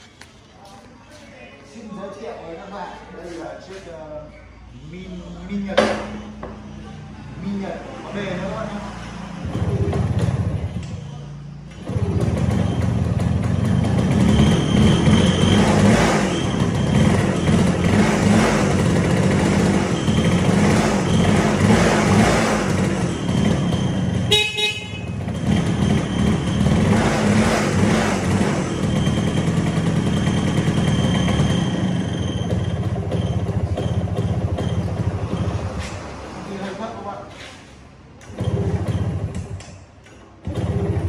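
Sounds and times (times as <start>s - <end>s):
motorcycle engine revving: 7.1s - 11.0s, 11.6s - 39.6s, 40.4s - 41.0s.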